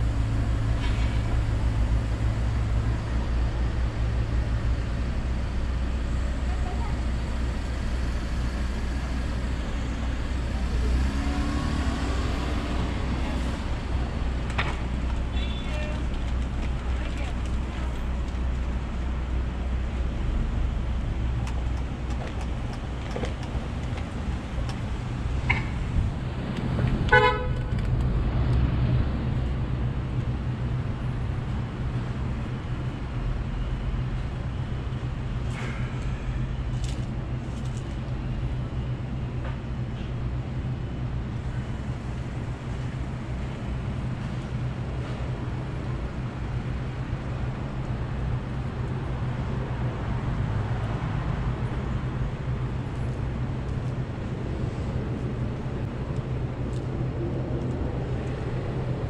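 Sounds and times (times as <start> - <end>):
idling traffic hum: 0.0 - 59.0
vehicle horn toot: 15.3 - 15.9, 27.1 - 27.7.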